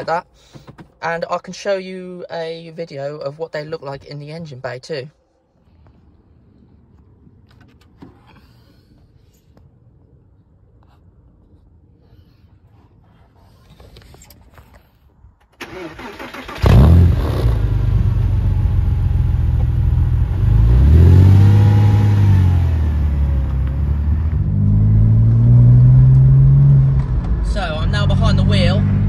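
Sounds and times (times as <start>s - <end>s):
car engine idling: 15.6s - 29.0s
engine revving: 15.6s - 29.0s.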